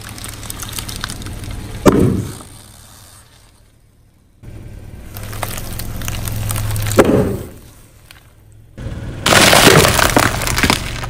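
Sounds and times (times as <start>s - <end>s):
eggshells cracking under tyre: 0.0s - 3.6s, 5.0s - 8.4s, 9.2s - 11.0s
loud crunch of ball: 0.0s - 3.6s, 5.1s - 8.3s, 9.2s - 11.0s
foam beads crackling under tyre: 0.0s - 8.5s, 9.2s - 11.0s
low engine hum: 0.0s - 11.0s.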